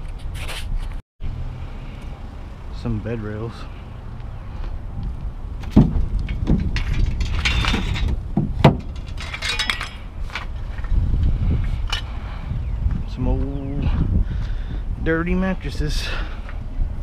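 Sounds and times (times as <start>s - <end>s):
metallic jingling: 5.6s - 10.5s
sharp metal knocks: 5.6s - 10.5s
steel rails clanking: 5.6s - 10.5s.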